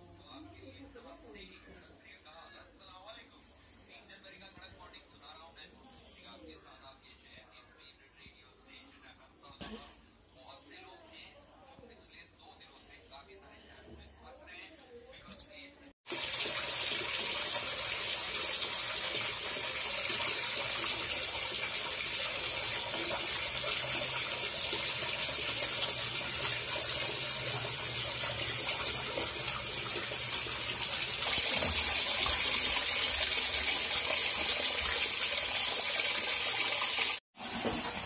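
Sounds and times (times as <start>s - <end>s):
water running from a tap: 16.1s - 38.0s.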